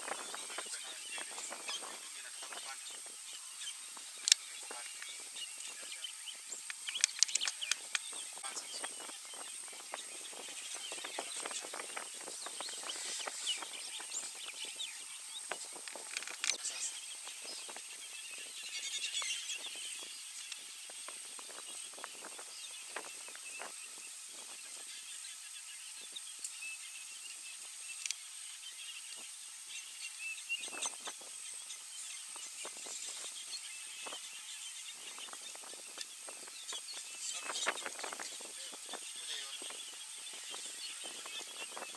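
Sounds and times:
birds chirping: 0.0s - 41.9s
steady high hiss: 0.0s - 41.9s
crackles and rustles: 15.5s - 18.0s.

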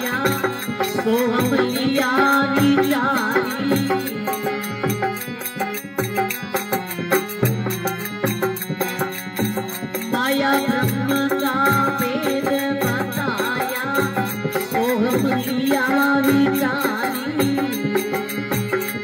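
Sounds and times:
man singing: 0.0s - 5.2s, 9.9s - 19.0s
harmonium chords: 0.0s - 19.0s
percussion beat: 0.0s - 19.0s.

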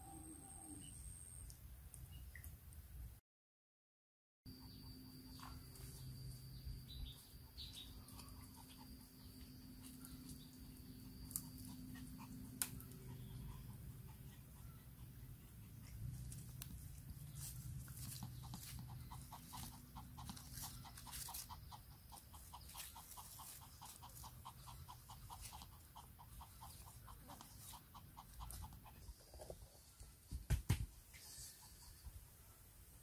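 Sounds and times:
small dog panting: 7.0s - 30.3s, 31.0s - 32.4s
leaves rustling: 19.5s - 21.5s.

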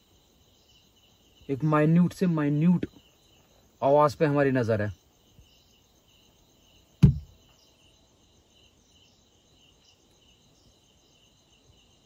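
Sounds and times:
crickets chirring: 0.0s - 12.0s
sharp knock: 7.0s - 7.4s.

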